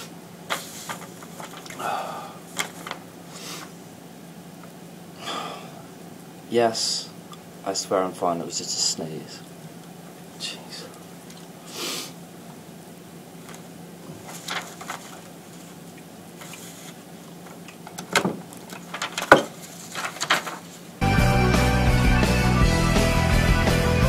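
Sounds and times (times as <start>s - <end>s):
paper punch clicks and knocks: 17.9s - 20.5s
loud rock music with guitar: 21.0s - 24.0s.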